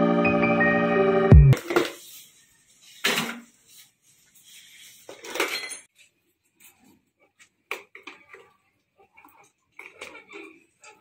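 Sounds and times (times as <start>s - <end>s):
metal tools clinking: 5.1s - 5.9s.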